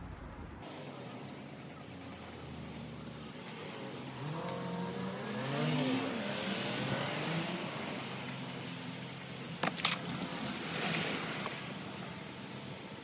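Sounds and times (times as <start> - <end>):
car passing by: 3.5 - 8.6, 10.0 - 12.8.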